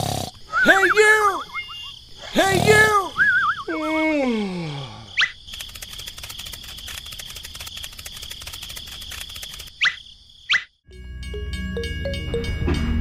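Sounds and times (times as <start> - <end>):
cartoon rising squeak: 0.5 - 2.0, 2.7 - 3.8
rapid light clicks: 5.4 - 10.0.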